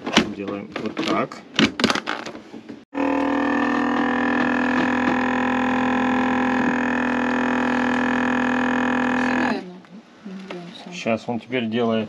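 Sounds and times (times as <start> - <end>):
vacuum sealer pump humming: 3.0 - 9.6.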